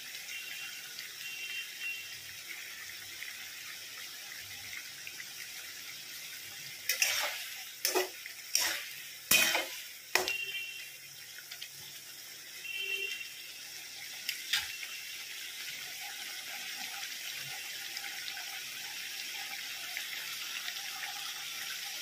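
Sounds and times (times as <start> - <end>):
spatula scraping pan: 6.9 - 10.4.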